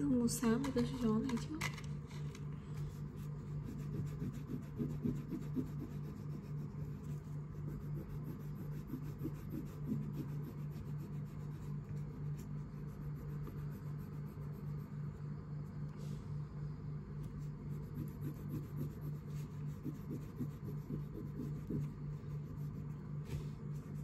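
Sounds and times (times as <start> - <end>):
steady low hum: 0.0 - 24.0
pencil shading on paper: 2.9 - 15.2, 17.2 - 24.0.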